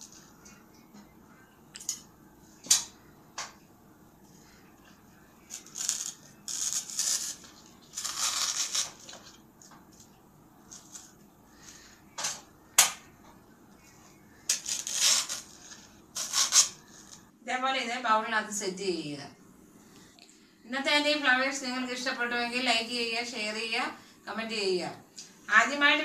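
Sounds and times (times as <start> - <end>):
paper rustling and crinkling: 5.5 - 10.1, 14.5 - 17.3.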